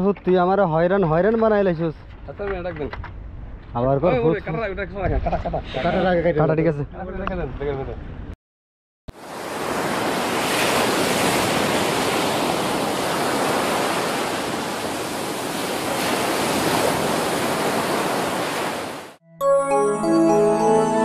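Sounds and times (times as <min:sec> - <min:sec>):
sea surf rushing: 0:09.2 - 0:19.2.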